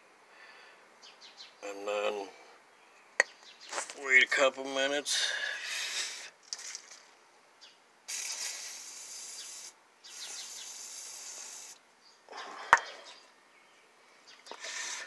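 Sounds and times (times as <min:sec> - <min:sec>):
aerosol can spraying: 0:08.1 - 0:11.8.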